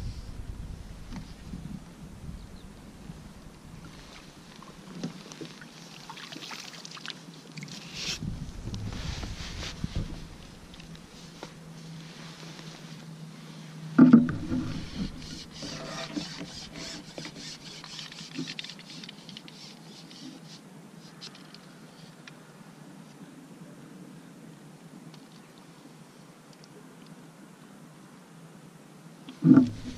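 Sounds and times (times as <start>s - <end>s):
hands rubbing and rustling: 7.8s - 21.2s.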